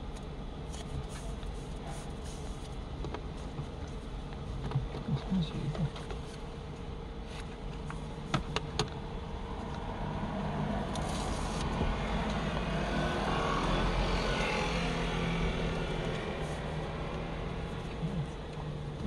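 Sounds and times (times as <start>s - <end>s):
car passing: 9.4s - 18.1s.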